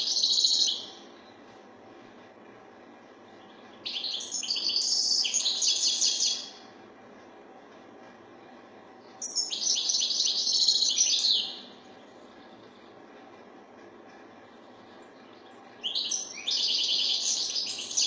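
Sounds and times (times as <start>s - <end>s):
bird twittering song: 0.0s - 1.0s, 3.3s - 6.6s, 9.0s - 12.9s, 15.1s - 18.0s.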